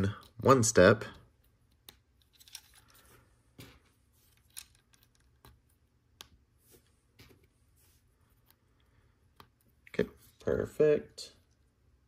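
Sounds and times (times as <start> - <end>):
plastic pieces clicking: 1.7 - 3.0.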